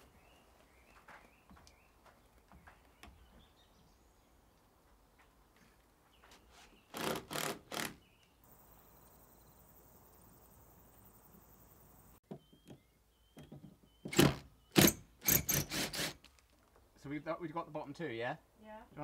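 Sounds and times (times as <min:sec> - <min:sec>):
high insect buzz: 0:08.5 - 0:12.2
cordless drill driving screws: 0:14.1 - 0:16.3.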